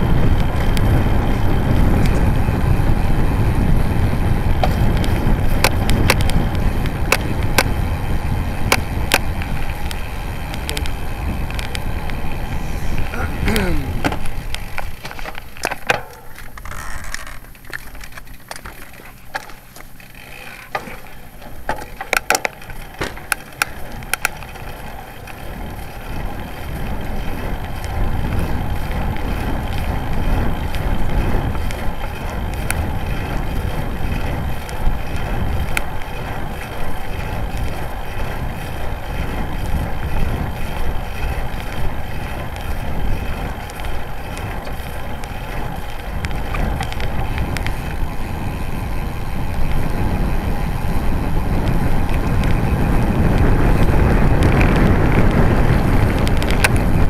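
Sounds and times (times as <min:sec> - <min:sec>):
wind on microphone: 0:00.0 - 0:18.6, 0:20.9 - 0:57.0
tyres rolling on tarmac: 0:00.0 - 0:57.0
sharp clicks and knocks: 0:14.0 - 0:19.9, 0:20.6 - 0:24.6.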